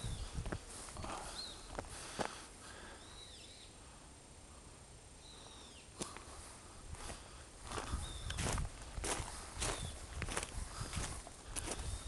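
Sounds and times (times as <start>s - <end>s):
bird calling: 1.0s - 3.8s, 5.2s - 6.2s, 7.8s - 8.5s
footsteps on dry leaves: 7.0s - 12.0s.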